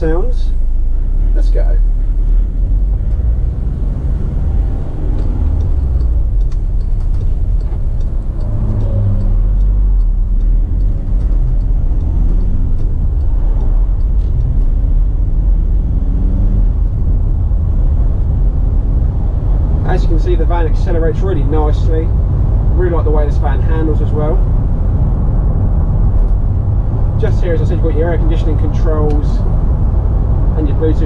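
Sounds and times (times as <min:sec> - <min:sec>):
road rumble: 0:00.0 - 0:31.0
van diesel engine accelerating: 0:00.0 - 0:31.0.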